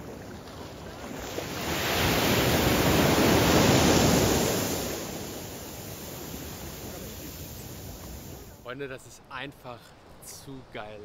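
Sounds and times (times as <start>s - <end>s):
ocean wave breaking: 0.0s - 8.6s.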